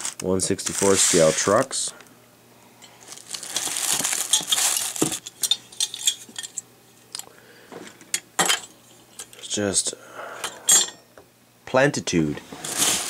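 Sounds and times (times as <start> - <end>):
paper rustling: 0.0 - 1.6, 3.0 - 5.3, 12.6 - 13.0.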